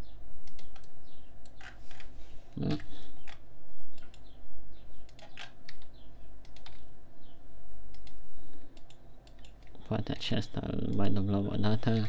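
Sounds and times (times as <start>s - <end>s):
steady low hum: 0.0s - 12.0s
computer mouse clicks: 0.4s - 2.1s, 2.8s - 4.4s, 5.0s - 6.9s, 7.9s - 9.8s.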